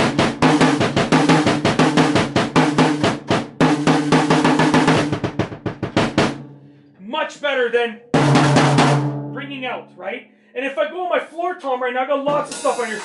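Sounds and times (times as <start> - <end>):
drum kit fast groove: 0.0 - 6.6, 8.1 - 9.7, 12.1 - 13.0.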